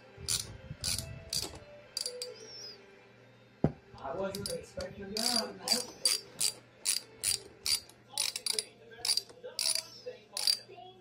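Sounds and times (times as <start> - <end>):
socket wrench ratchet clicking: 0.3 - 2.4, 4.3 - 4.6, 5.2 - 10.6.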